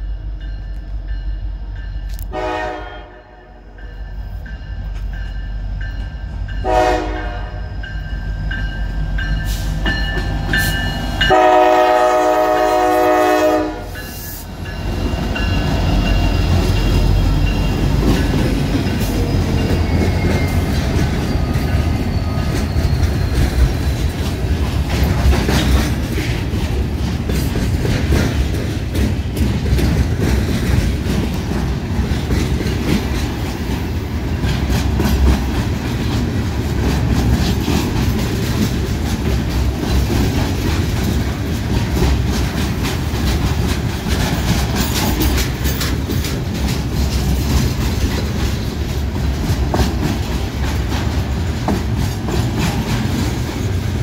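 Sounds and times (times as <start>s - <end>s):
freight train rumbling past: 0.0s - 54.0s
locomotive air horn blasts: 2.2s - 3.6s, 6.6s - 7.7s, 11.3s - 14.1s
wheels clicking over rail joints: 14.6s - 54.0s.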